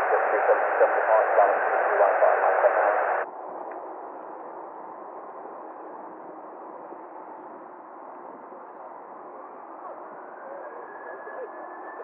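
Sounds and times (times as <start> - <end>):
radio hiss: 0.0 - 3.2
radio voice over static: 0.0 - 3.2.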